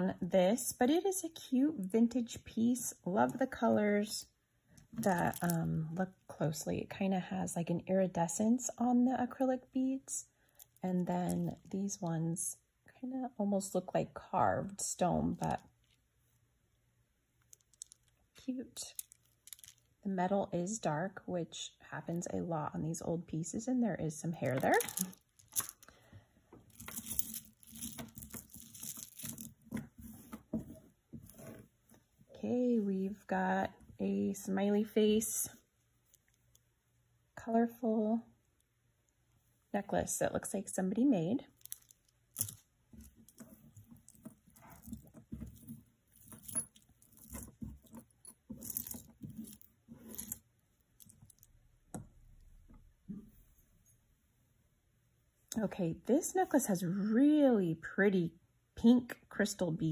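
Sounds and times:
jewelry rustling on cloth: 4.8 - 5.7, 10.5 - 12.0, 17.4 - 20.0, 24.4 - 26.0, 26.6 - 32.8, 41.5 - 51.5
metal chains and beads clinking: 5.0 - 5.6, 18.8 - 19.9, 24.5 - 25.9, 26.7 - 29.6, 41.6 - 42.6, 43.3 - 50.4.

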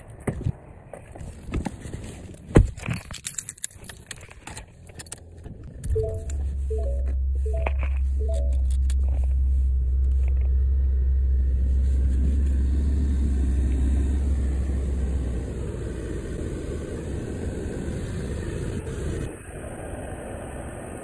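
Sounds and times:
truck engine rumbling inside cab: 1.1 - 19.3
clicks: 4.1 - 9.4.

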